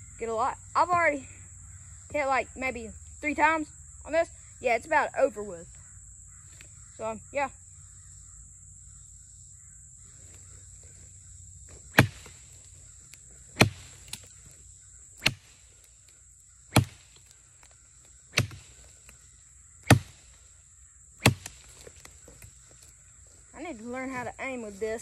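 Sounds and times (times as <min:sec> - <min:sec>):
machete chopping tree trunk: 0:11.7 - 0:14.4, 0:15.1 - 0:15.8, 0:16.7 - 0:19.2, 0:19.8 - 0:20.4, 0:21.2 - 0:22.5.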